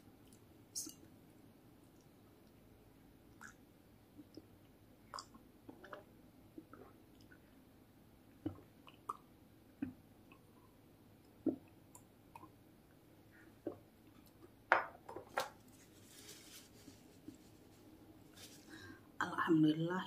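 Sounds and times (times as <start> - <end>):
person gulping a drink: 5.1 - 7.5
paper tissue rustling: 15.6 - 18.9.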